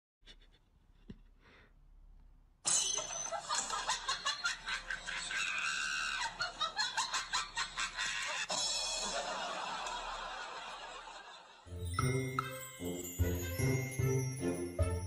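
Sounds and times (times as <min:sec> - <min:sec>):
person laughing and shrieking: 0:05.0 - 0:06.6, 0:07.8 - 0:08.5.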